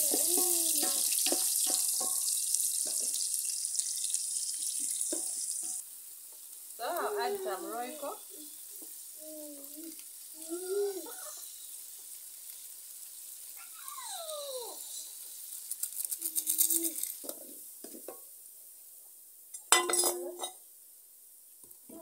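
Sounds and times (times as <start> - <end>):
spoon stirring and scraping pan: 0.0 - 6.6, 16.9 - 18.3, 19.6 - 20.6
sauce sizzling in a pan: 0.0 - 22.0.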